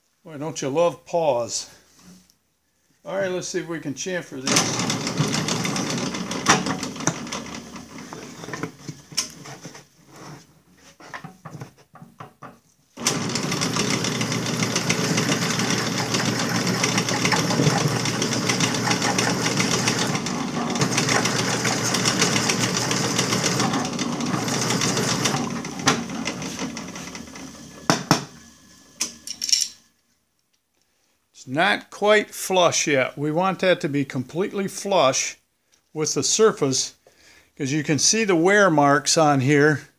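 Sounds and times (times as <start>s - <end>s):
drill press cutting metal: 4.5s - 9.3s, 13.0s - 29.6s.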